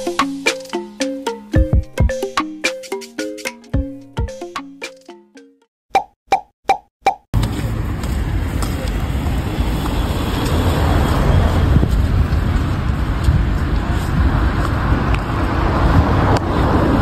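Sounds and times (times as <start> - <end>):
cars on the road: 7.4 - 17.0.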